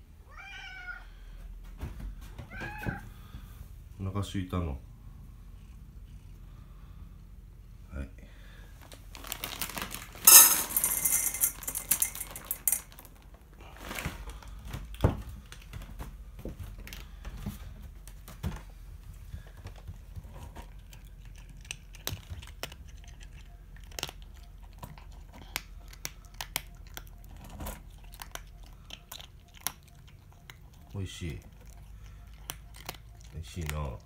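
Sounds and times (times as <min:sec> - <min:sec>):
kibble rattling into metal bowl: 0:09.3 - 0:13.2
cat crunching food: 0:19.4 - 0:34.0.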